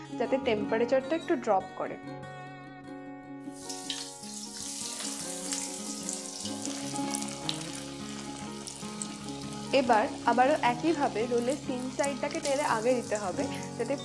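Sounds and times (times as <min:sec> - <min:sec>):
ukulele background music: 0:00.0 - 0:14.0
bread rolls sizzling in oil: 0:03.5 - 0:14.0.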